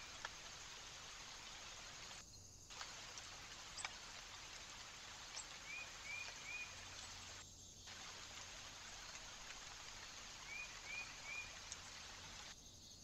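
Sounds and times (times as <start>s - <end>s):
faint outdoor hiss: 0.0s - 13.0s
small bird chirping: 5.2s - 7.8s
light ticks: 11.6s - 11.9s.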